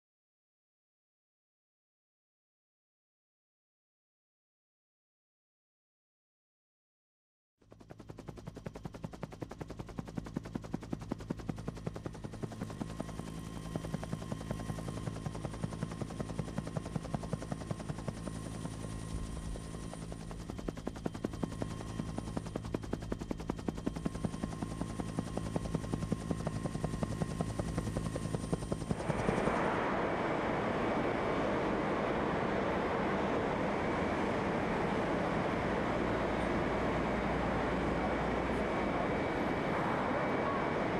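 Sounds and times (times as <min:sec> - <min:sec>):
helicopter rotor chopping: 0:07.8 - 0:40.9
turbine whine: 0:08.4 - 0:40.9
steady rushing roar: 0:28.4 - 0:40.9.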